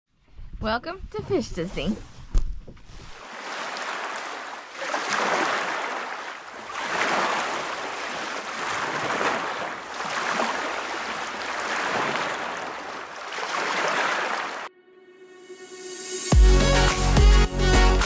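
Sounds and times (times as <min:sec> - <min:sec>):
ocean waves washing: 0:03.1 - 0:14.7.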